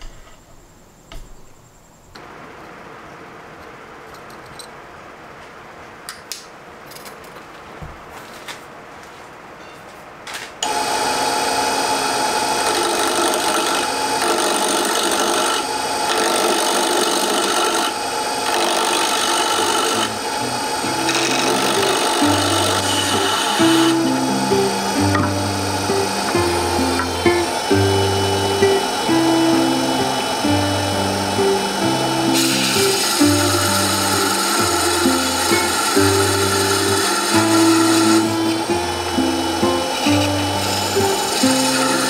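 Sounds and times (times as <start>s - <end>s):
turning tool cutting wood: 10.6s - 42.0s
wood lathe running: 10.6s - 42.0s.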